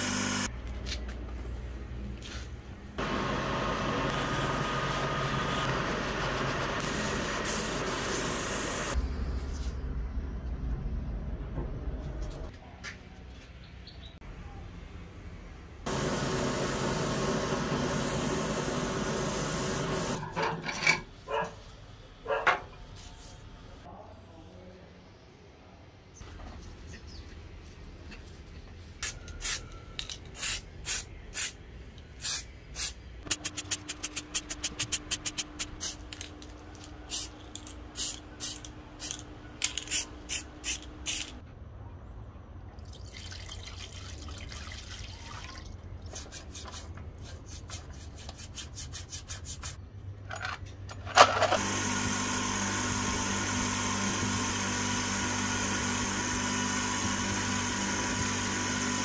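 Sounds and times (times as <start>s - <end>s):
motor running with high whine: 0.0s - 0.5s.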